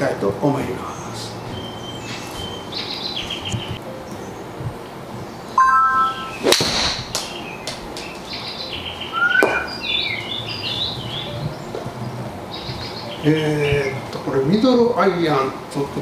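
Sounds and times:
birds chirping: 0:00.0 - 0:15.9
golf club striking ball: 0:06.4 - 0:07.4.

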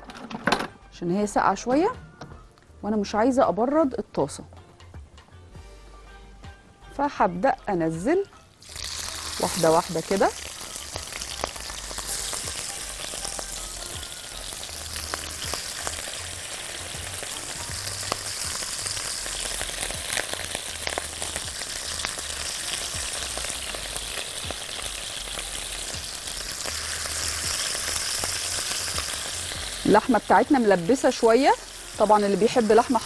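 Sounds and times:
meat sizzling in hot oil: 0:08.6 - 0:33.0.

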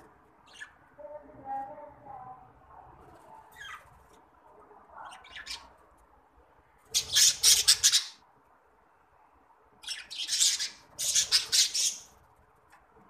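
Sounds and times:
budgerigars chirping: 0:07.0 - 0:08.2, 0:09.8 - 0:12.1.

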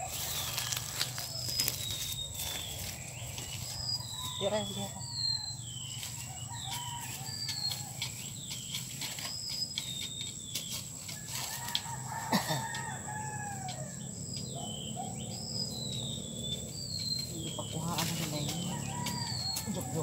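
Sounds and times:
leaves rustling: 0:00.0 - 0:13.4, 0:15.8 - 0:20.0
small birds chirping: 0:00.0 - 0:20.0
rooster crowing: 0:03.5 - 0:08.3, 0:11.1 - 0:16.2, 0:18.1 - 0:20.0.

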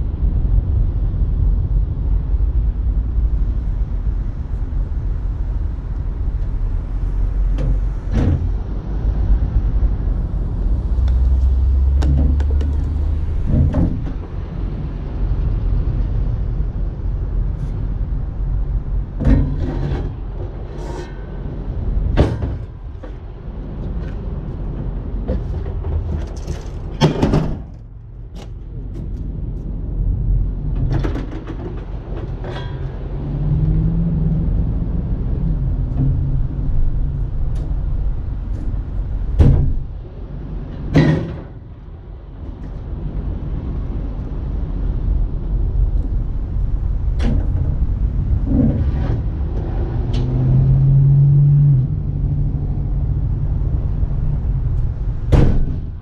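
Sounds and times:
steady low rumble: 0:00.0 - 0:56.0
metal knocks and clanks: 0:13.4 - 0:14.4, 0:22.0 - 0:24.2, 0:24.8 - 0:29.2, 0:30.7 - 0:33.3, 0:40.8 - 0:41.6.

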